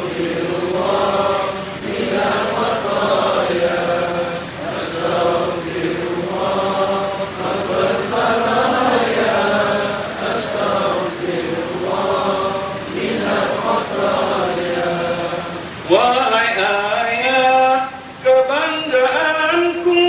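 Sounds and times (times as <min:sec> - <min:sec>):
man chanting a prayer through a microphone: 0:15.8 - 0:20.0.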